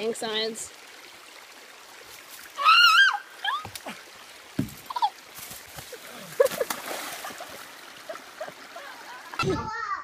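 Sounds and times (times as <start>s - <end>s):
splash into water: 6.2s - 7.6s
boy yelping: 9.4s - 10.0s.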